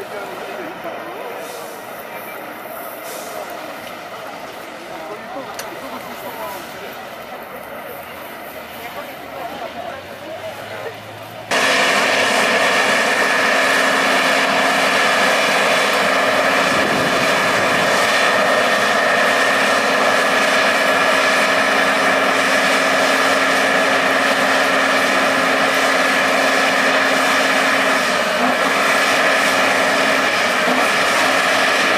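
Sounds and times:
truck diesel engine under load: 0:00.0 - 0:31.9
high whine: 0:11.5 - 0:31.9.

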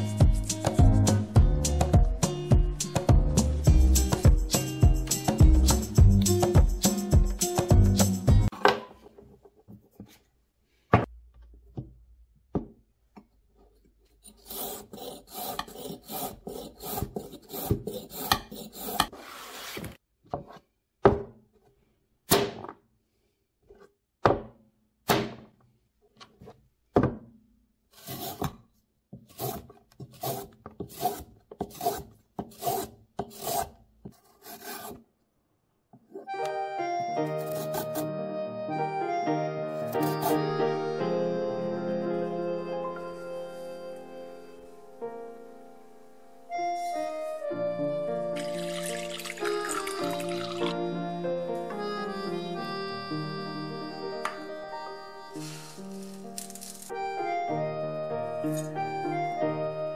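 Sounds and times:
peeler rasping along a carrot: 0:14.2 - 0:19.1, 0:29.3 - 0:35.0, 0:37.4 - 0:38.0, 0:39.8 - 0:40.4.

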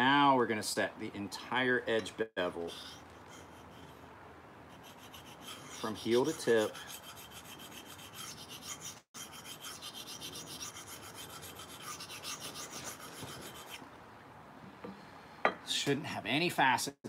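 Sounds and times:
knife scraping on sharpening stone: 0:04.8 - 0:13.8.

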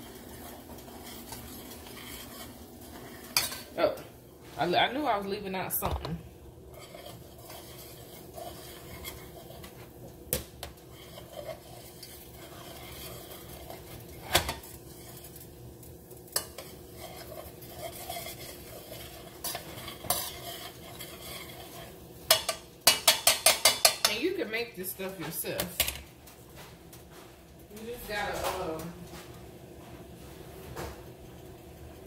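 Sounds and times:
metal spoon scraping saucepan: 0:00.0 - 0:03.7, 0:06.7 - 0:09.9, 0:10.9 - 0:15.3, 0:16.3 - 0:24.4.

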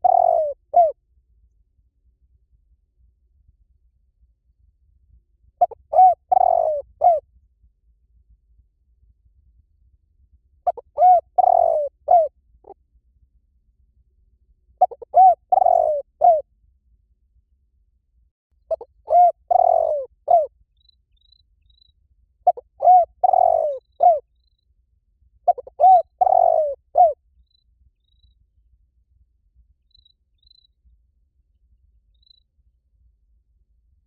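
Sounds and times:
dove cooing: 0:00.0 - 0:01.0, 0:05.6 - 0:07.2, 0:10.7 - 0:12.3, 0:14.8 - 0:16.4, 0:18.7 - 0:20.5, 0:22.4 - 0:24.2, 0:25.5 - 0:27.2.

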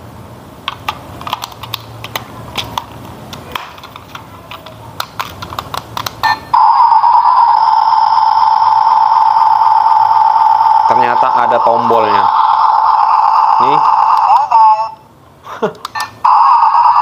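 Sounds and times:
plastic clicks and snaps: 0:00.7 - 0:06.2
steady electronic beep tone: 0:06.2 - 0:15.0.

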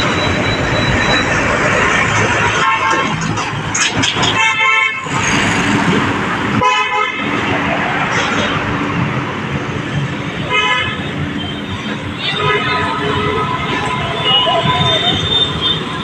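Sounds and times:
street traffic noise: 0:00.0 - 0:16.0
vehicle horn tooting: 0:12.2 - 0:16.0.

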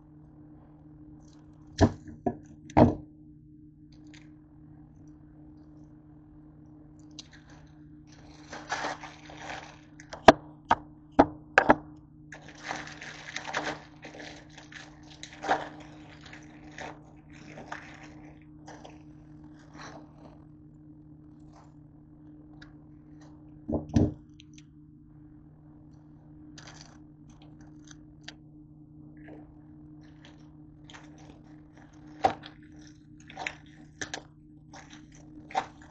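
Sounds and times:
steady low hum: 0:00.0 - 0:35.9
plastic packets crinkling: 0:07.1 - 0:10.4, 0:12.3 - 0:20.4, 0:26.6 - 0:28.4, 0:30.0 - 0:35.9.

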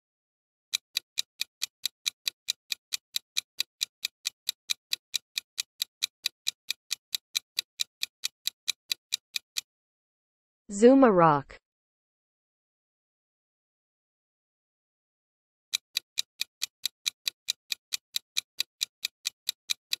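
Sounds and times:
clock ticking: 0:00.7 - 0:09.7, 0:15.7 - 0:20.0.

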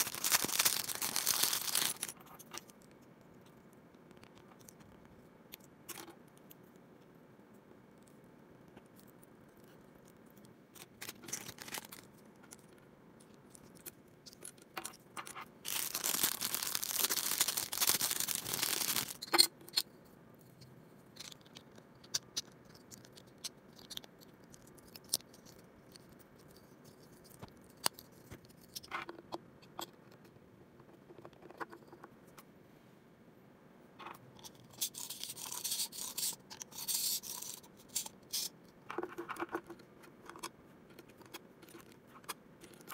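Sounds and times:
plastic wrapper crinkling: 0:00.0 - 0:02.8, 0:10.7 - 0:12.6, 0:14.4 - 0:19.4.

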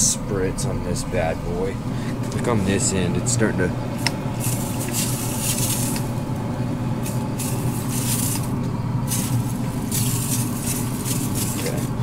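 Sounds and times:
steady low hum: 0:00.0 - 0:12.0
spray bottle hissing mist: 0:04.2 - 0:06.2, 0:06.9 - 0:12.0.

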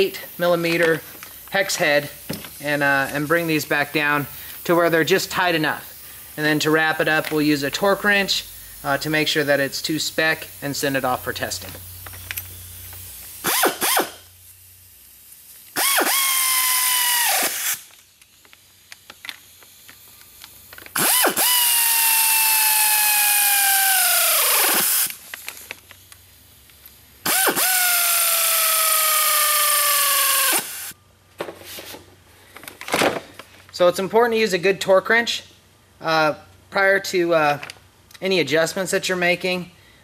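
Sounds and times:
pneumatic air ratchet whining: 0:08.3 - 0:14.6, 0:15.3 - 0:18.3, 0:19.1 - 0:26.0, 0:27.2 - 0:31.0.

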